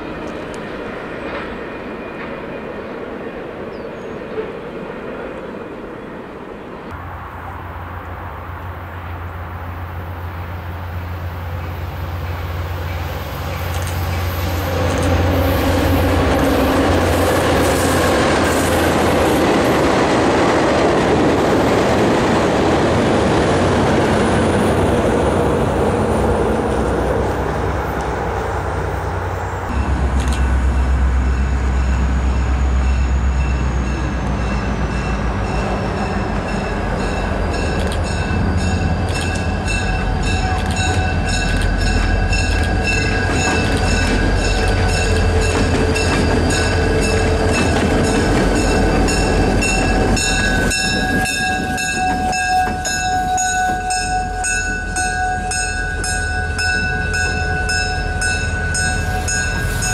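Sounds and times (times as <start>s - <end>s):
diesel locomotive engine rumbling: 0.0s - 59.9s
locomotive bell ringing: 29.4s - 59.9s.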